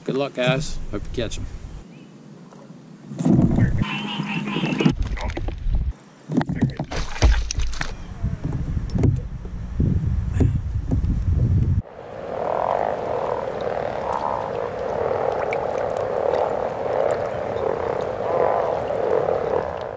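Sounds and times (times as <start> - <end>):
chorus of frogs calling: 3.8 - 4.9, 11.8 - 19.9
low rumbling noise: 8.0 - 19.9.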